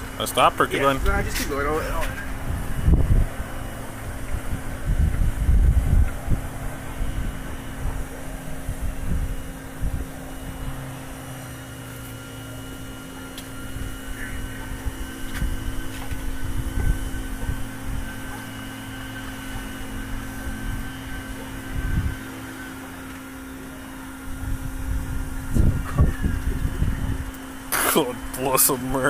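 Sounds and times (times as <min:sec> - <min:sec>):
steady low hum: 0:00.0 - 0:29.0
low rumble on microphone: 0:01.0 - 0:11.2, 0:13.6 - 0:18.5, 0:24.2 - 0:28.4.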